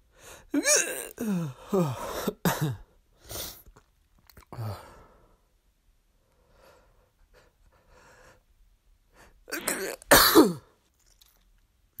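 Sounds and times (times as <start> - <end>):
person sneezing: 9.5 - 10.7.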